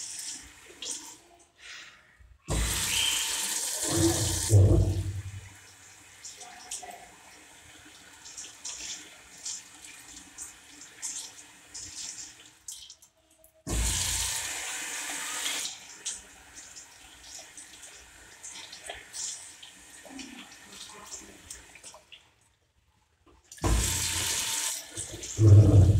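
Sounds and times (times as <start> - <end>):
tap water splashing into sink: 2.5 - 5.6, 8.2 - 14.4, 23.2 - 25.9.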